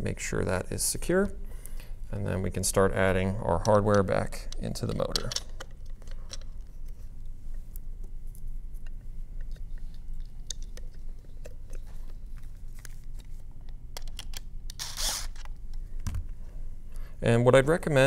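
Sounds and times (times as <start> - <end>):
plastic parts clicking and tapping: 14.0 - 14.4
cordless screwdriver rasp: 14.8 - 15.4.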